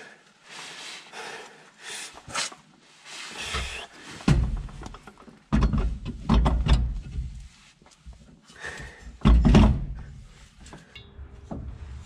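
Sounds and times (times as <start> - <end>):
heavy metal clunk: 3.6 - 7.3, 9.2 - 10.2
loud thuds and knocks: 4.2 - 7.3, 9.2 - 10.1.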